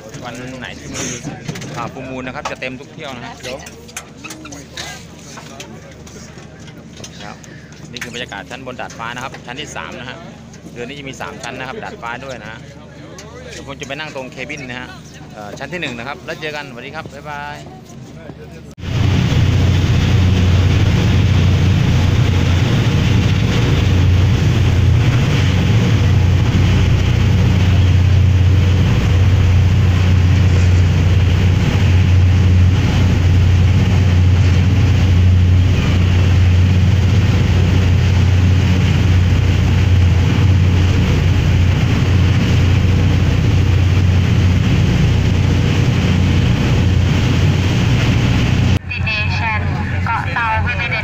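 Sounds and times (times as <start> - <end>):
rushing boat wake: 0.0 - 18.0, 18.8 - 51.0
low engine drone: 0.0 - 51.0
wind across deck: 18.8 - 49.8.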